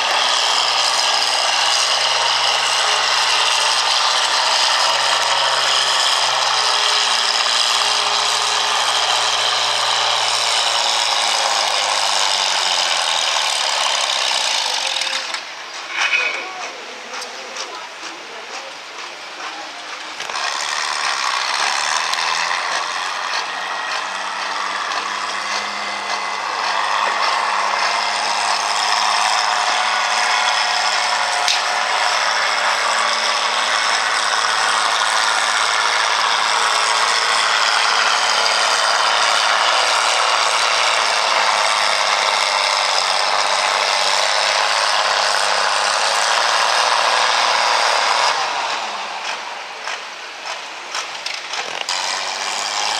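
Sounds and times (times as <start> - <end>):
tractor engine under load: 0.0 - 52.9
mechanical gear clatter: 12.0 - 16.4, 33.6 - 52.9.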